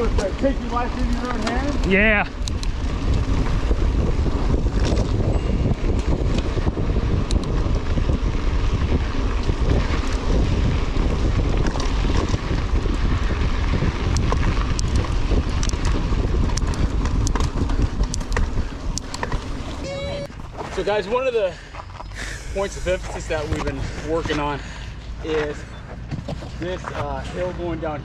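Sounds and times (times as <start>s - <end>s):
sharp ticks and rattles: 0.0s - 19.7s
tyres rumbling on ground: 0.0s - 28.0s
wind buffeting microphone: 0.0s - 28.0s.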